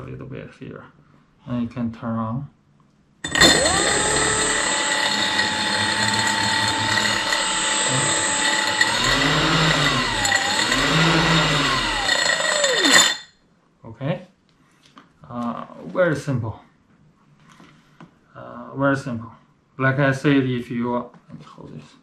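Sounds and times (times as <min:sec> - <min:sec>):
electric motor propeller whine: 0:03.3 - 0:13.2.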